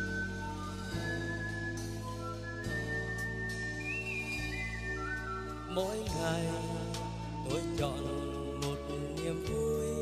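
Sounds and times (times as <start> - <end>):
background music with high melody: 0.0 - 10.0.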